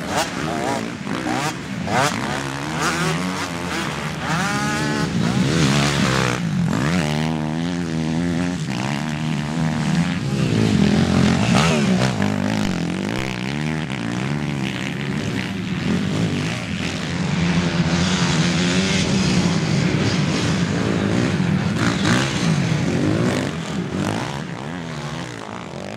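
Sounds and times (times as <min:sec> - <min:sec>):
dirt bike engines revving: 0:00.0 - 0:25.9.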